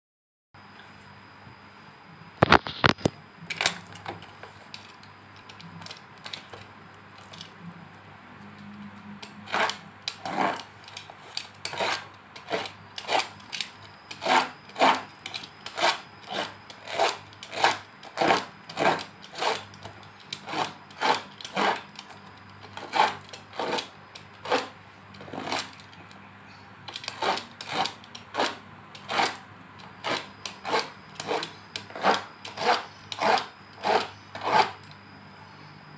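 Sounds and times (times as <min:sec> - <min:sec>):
paper parcel scraping open: 0:09.4 - 0:10.8, 0:20.4 - 0:21.9.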